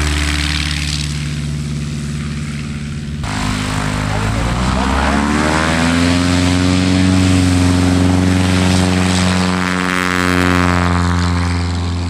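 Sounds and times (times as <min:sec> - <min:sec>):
propeller plane engine running: 0:00.0 - 0:12.0.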